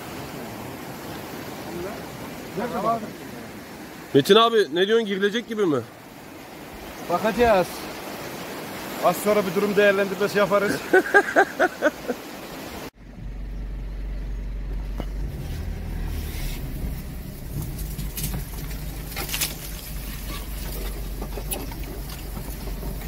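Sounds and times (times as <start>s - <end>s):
truck engine drone: 13.0s - 23.0s.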